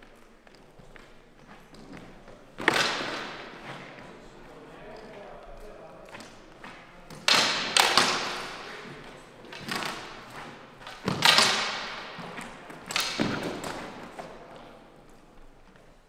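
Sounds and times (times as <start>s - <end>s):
training swords clacking: 6.1s - 14.4s.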